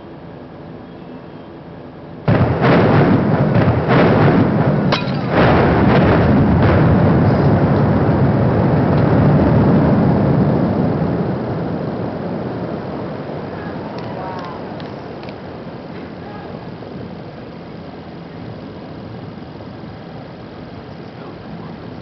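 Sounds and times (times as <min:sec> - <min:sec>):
demolition charge blasts: 0:02.2 - 0:17.2
heavy rumble of building collapse: 0:02.2 - 0:22.0.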